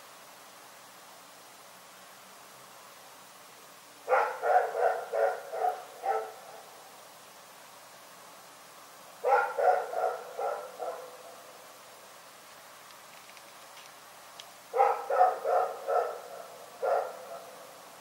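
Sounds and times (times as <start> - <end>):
dog barking: 4.0 - 6.7, 9.2 - 11.4, 14.7 - 17.7.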